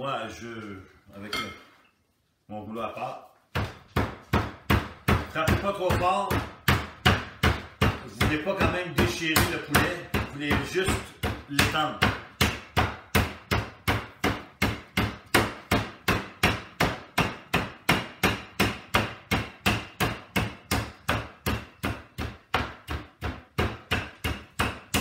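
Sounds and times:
rolling pin pounding meat: 3.5s - 25.0s.

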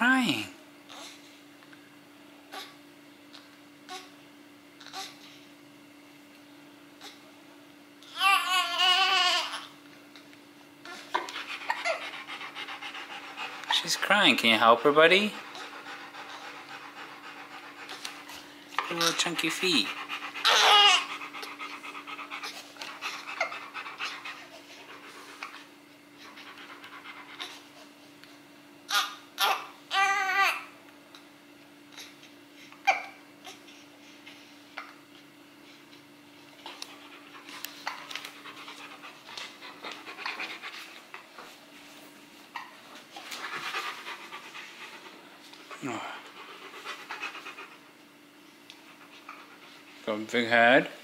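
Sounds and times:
newborn baby crying: 8.0s - 9.7s, 20.4s - 21.1s, 28.9s - 30.7s
dog panting softly: 11.0s - 28.1s, 36.6s - 42.0s, 42.9s - 50.7s.

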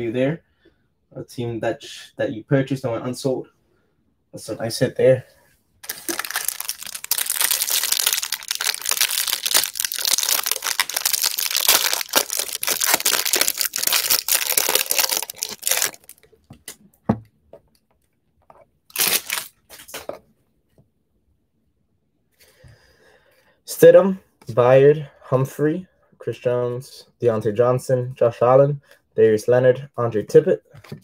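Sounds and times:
plastic wrap crinkling and tearing: 5.8s - 16.3s, 18.9s - 20.1s.

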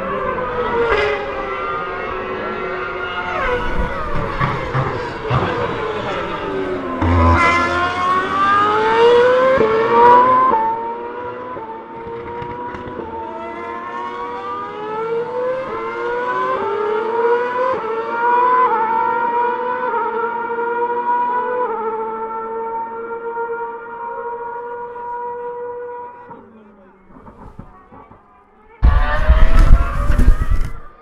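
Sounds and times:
racing car engines accelerating: 0.0s - 28.1s
quick gear upshifts: 28.8s - 31.0s.

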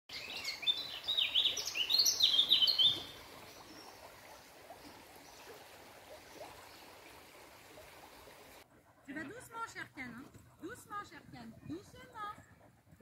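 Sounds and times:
songbird twittering: 0.1s - 4.1s.

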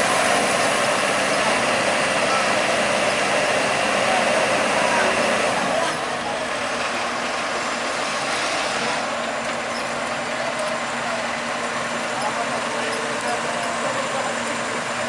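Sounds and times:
heavy diesel engines running: 0.0s - 15.0s.

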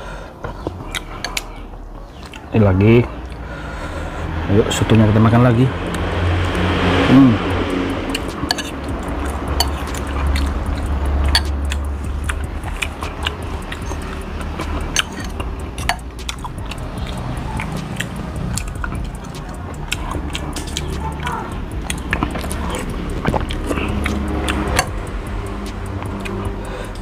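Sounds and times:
person chewing: 0.4s - 2.5s, 3.1s - 4.4s, 5.9s - 27.0s
cutlery clinking against bowl: 8.4s - 8.8s, 11.3s - 11.6s, 14.8s - 16.0s.

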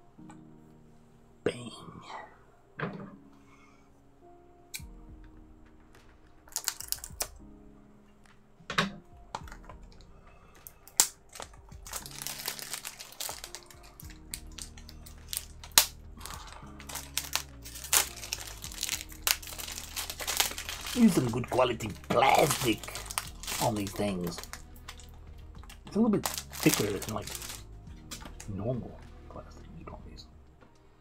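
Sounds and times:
quiet music: 0.0s - 31.0s
plastic crinkling: 6.0s - 7.4s, 9.3s - 28.6s.

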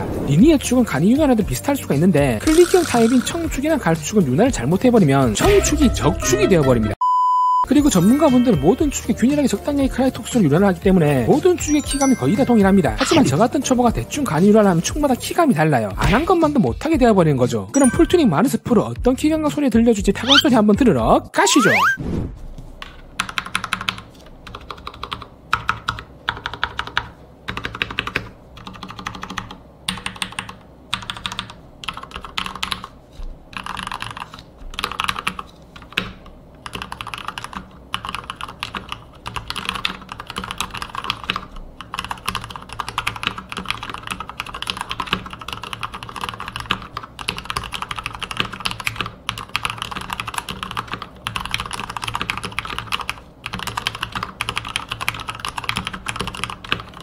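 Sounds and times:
mechanical keyboard typing: 2.4s - 3.4s, 23.2s - 32.9s, 33.5s - 57.0s.

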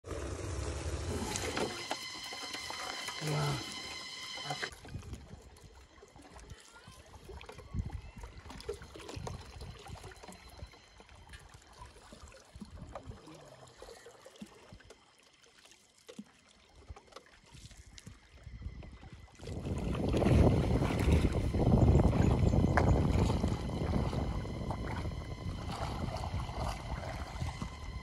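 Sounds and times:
water sloshing against boat hull: 1.2s - 28.0s
paddle knocking on boat: 19.9s - 25.0s.

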